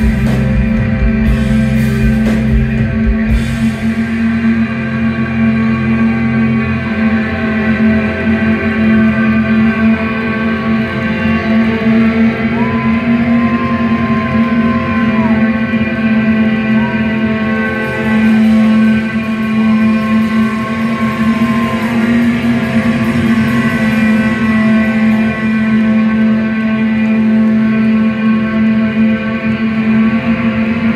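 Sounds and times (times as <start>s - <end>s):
low drone: 0.0s - 30.9s
sustained electric guitars: 0.0s - 30.9s
high sliding guitar note: 16.8s - 28.8s.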